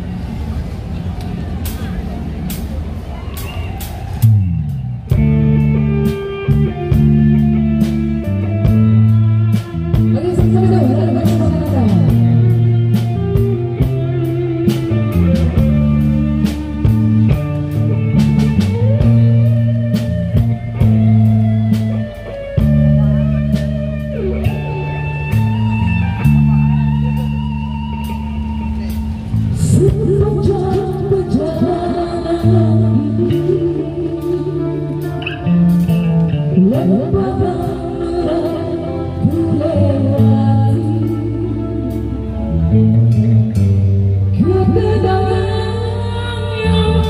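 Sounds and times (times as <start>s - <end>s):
electric guitar: 0.0s - 47.0s
walking electric bass: 0.0s - 47.0s
drum kit steady beat: 1.6s - 30.0s.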